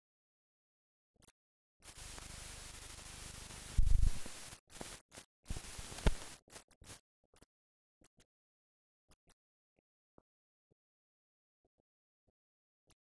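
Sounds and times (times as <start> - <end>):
film soundtrack hiss and crackle: 1.2 - 7.5.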